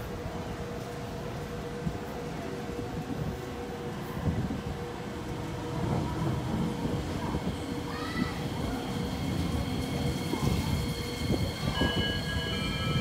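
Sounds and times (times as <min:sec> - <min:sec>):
train wheels rumbling: 0:00.0 - 0:13.0.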